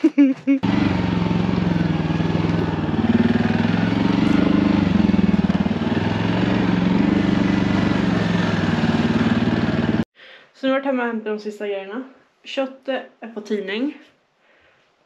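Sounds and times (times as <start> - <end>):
vehicle engine running: 0.6 - 10.1.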